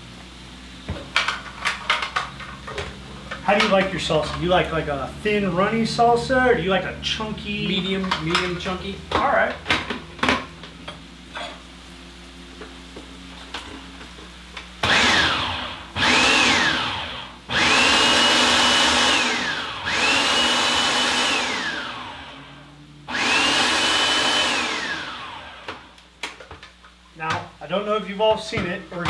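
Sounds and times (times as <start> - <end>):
food processor motor whine: 14.8 - 26.0.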